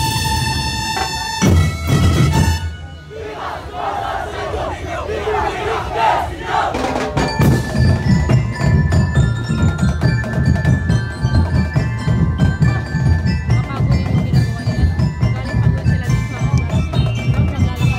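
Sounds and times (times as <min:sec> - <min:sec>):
drum beat: 0:06.5 - 0:17.9
bell-like mallet notes: 0:07.0 - 0:17.9.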